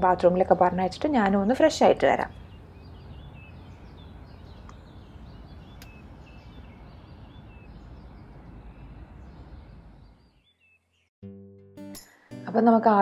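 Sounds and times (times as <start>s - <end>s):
low outdoor rumble: 0.0s - 10.3s
birds chirping: 0.0s - 11.1s.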